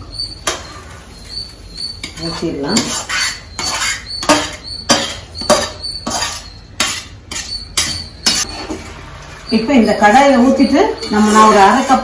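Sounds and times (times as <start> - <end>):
metal ladle scraping metal pan: 2.0 - 8.9, 10.5 - 12.0.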